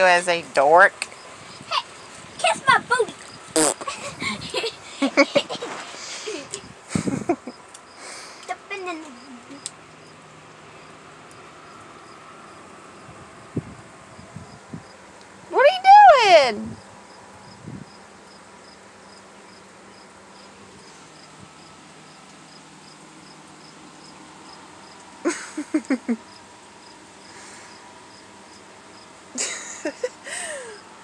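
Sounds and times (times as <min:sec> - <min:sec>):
insects chirping: 0:01.0 - 0:15.4, 0:16.7 - 0:30.9.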